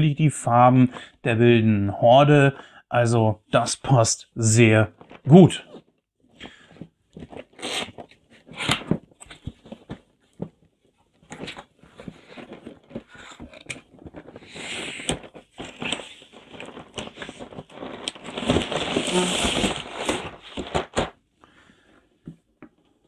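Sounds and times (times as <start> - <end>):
cardboard rustling scrape: 6.4 - 21.2.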